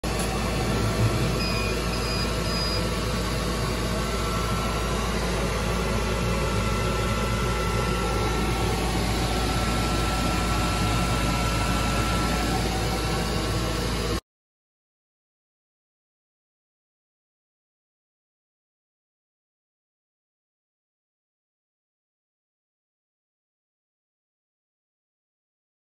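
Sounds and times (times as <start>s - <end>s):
ventilation fans whirring: 0.0s - 14.2s.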